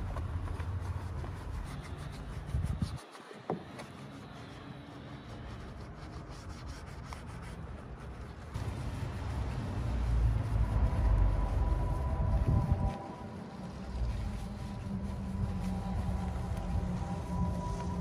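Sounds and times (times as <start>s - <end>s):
brush scrubbing wet surface: 0.0s - 18.0s
low rumble: 8.6s - 18.0s.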